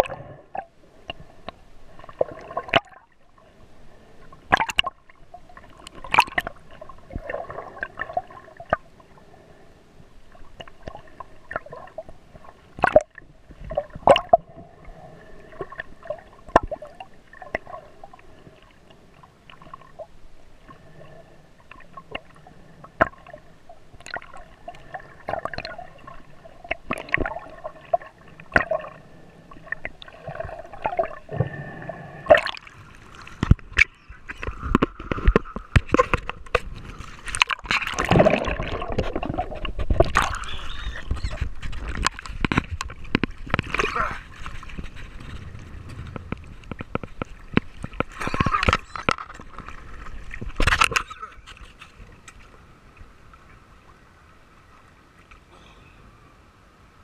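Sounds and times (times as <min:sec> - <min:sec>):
water gurgling and sloshing: 0:00.0 - 0:57.0
sharp clicks and knocks: 0:44.7 - 0:49.7.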